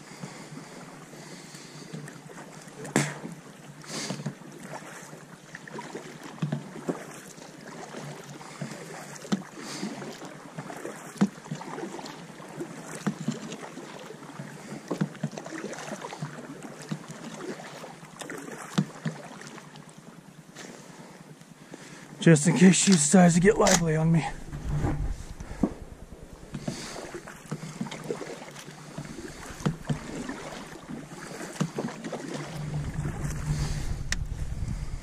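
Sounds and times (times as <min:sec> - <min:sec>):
paddle splashing: 0:00.0 - 0:35.0
water sloshing along hull: 0:00.0 - 0:35.0
paddle knocks: 0:22.8 - 0:34.8.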